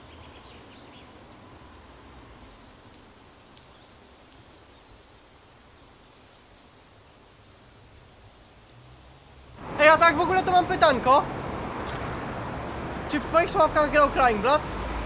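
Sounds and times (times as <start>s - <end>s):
faint steady hiss: 0.0s - 14.8s.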